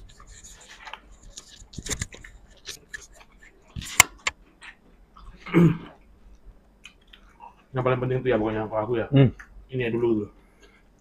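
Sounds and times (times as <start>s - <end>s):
mouth clicks and smacks eating: 1.2s - 7.7s
throat noise: 5.2s - 6.0s.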